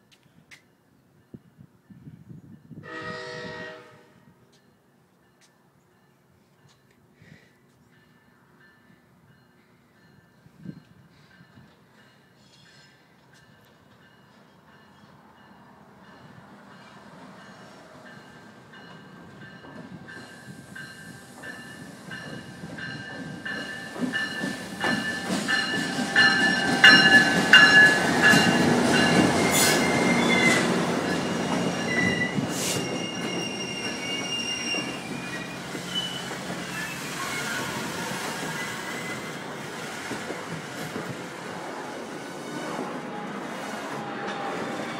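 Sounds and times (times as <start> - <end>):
train rumbling past: 7.8 - 44.9
high wheel squeal: 29.4 - 39.4.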